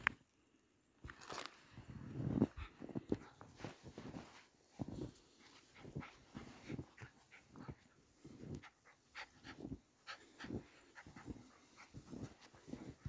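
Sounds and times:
footsteps crunching in snow: 1.1s - 8.7s, 9.4s - 13.0s
dog panting: 5.0s - 13.0s.

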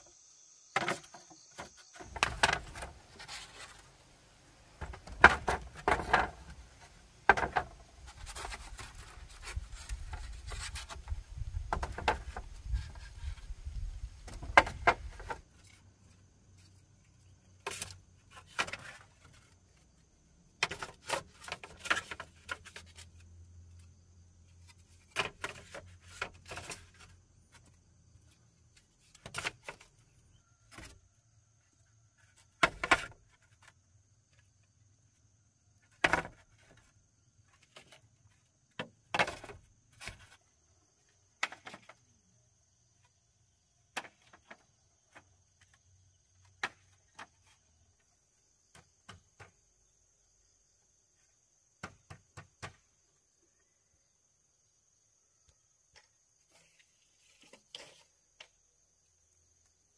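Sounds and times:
bamboo poles knocking: 0.8s - 3.5s, 4.8s - 6.6s, 7.2s - 13.5s, 14.2s - 15.4s
bamboo poles scraping: 0.8s - 20.0s, 20.6s - 31.0s, 35.8s - 40.6s, 56.0s - 58.6s.

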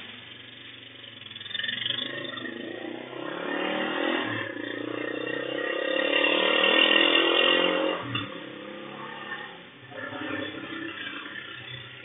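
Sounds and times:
vehicle engine running: 0.0s - 12.0s.

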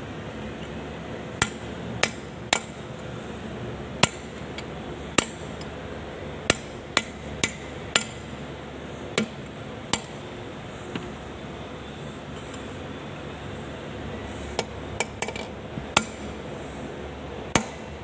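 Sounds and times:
hammer striking steel punch: 1.4s - 2.8s, 4.0s - 4.4s, 5.2s - 5.5s, 6.5s - 8.2s, 9.2s - 10.2s, 16.0s - 16.3s, 17.5s - 17.9s.

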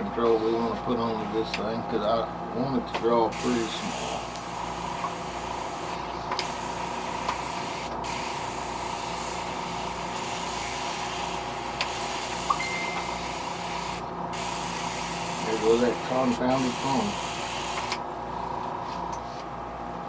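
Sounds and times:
steady hum: 0.0s - 20.0s
airbrush hissing: 3.3s - 18.0s.

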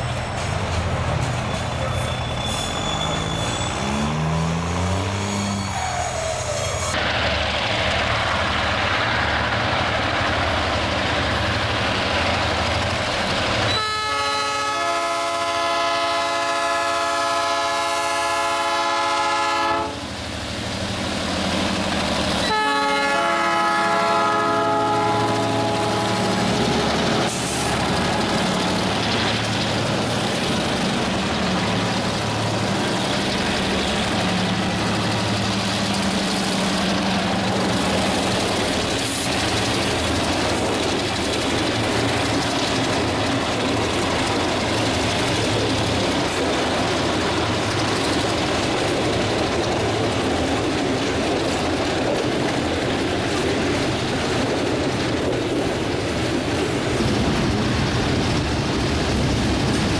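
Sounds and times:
diesel locomotive engines rumbling: 0.0s - 59.9s
train air horn: 13.7s - 20.1s, 22.4s - 26.9s.

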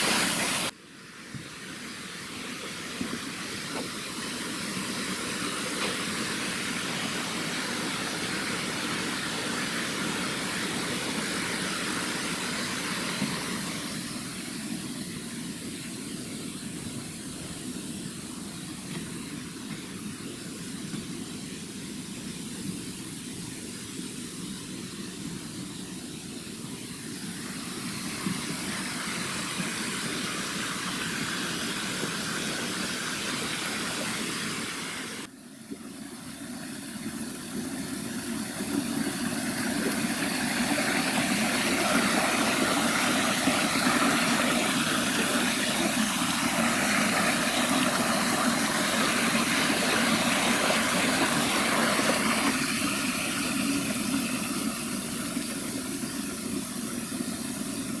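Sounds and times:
waterfall rushing over rock: 0.0s - 16.1s, 27.0s - 35.3s, 36.2s - 58.0s.

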